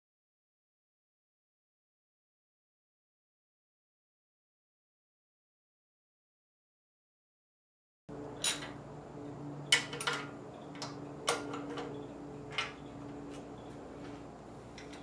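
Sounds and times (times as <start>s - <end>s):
faint steady hum: 8.1s - 15.0s.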